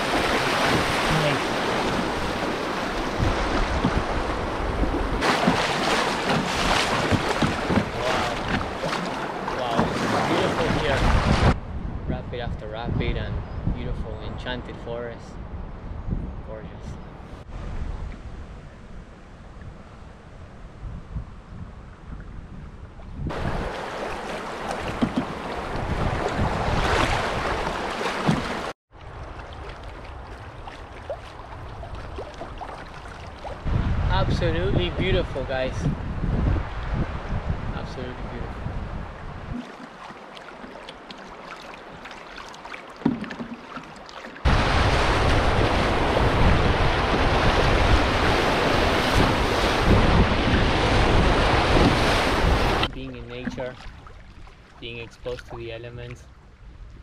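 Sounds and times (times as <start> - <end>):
river water rushing: 0.0 - 11.4, 23.3 - 33.7, 39.5 - 52.9
wind buffeting microphone: 0.0 - 28.4, 29.1 - 39.7, 44.4 - 57.0.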